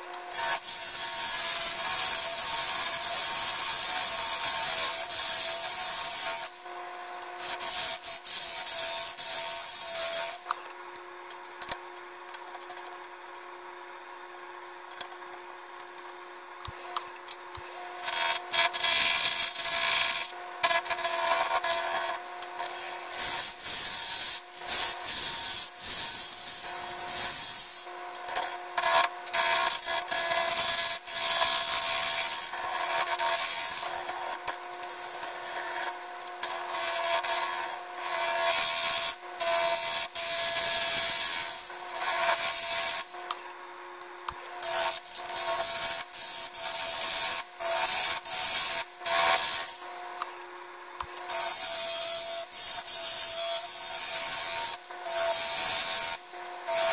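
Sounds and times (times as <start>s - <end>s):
gouge cutting spinning wood: 0.2s - 10.5s.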